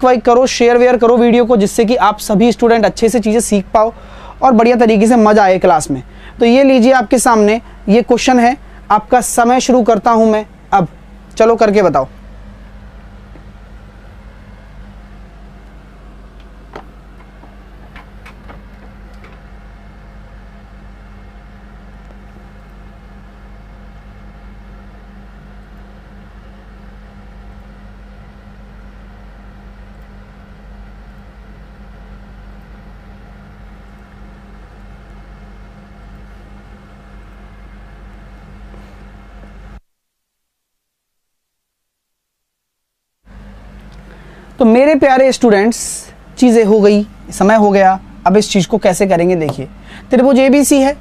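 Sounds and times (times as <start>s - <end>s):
room and equipment hum: 0.0s - 51.0s.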